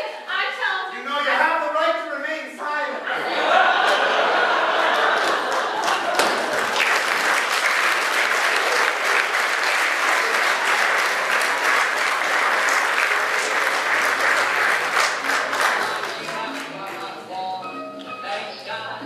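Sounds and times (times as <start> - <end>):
audience applauding: 3.5 - 17.2.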